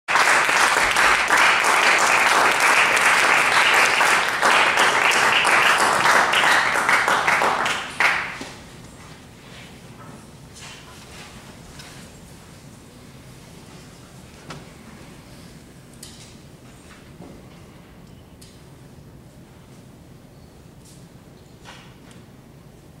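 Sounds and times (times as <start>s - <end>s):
audience applauding: 0.1s - 8.5s.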